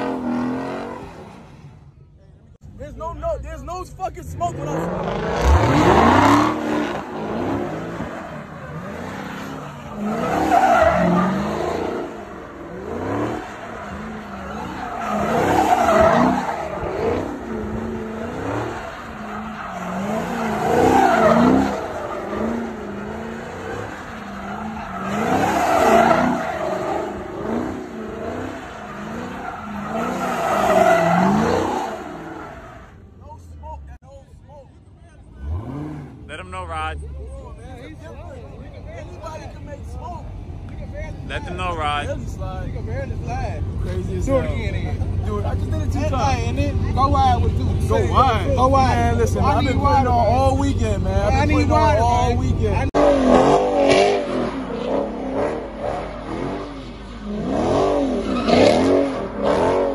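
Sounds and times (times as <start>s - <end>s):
car engine revving: 0.0s - 2.0s, 4.2s - 33.9s, 35.0s - 59.9s
tyres squealing: 4.5s - 33.4s, 43.9s - 59.9s.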